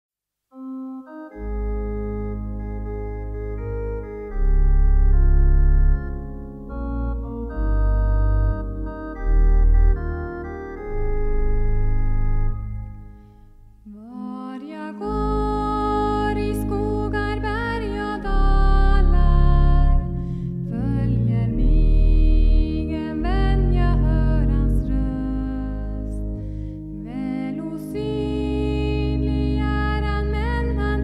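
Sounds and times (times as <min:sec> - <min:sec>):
church organ playing chords: 0:00.5 - 0:13.9, 0:14.9 - 0:31.0
woman singing: 0:13.9 - 0:26.3, 0:27.0 - 0:31.0.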